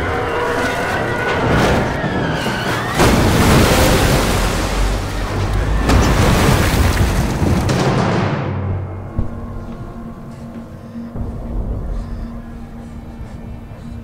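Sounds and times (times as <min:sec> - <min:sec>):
music: 0:00.0 - 0:03.2, 0:04.6 - 0:14.0
rushing water roar: 0:00.0 - 0:08.3.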